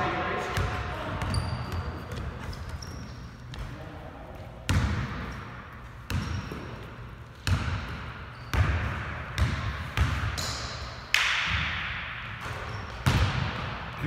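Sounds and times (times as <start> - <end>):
basketball bouncing on hardwood floor: 6.1 - 6.8, 7.4 - 10.3.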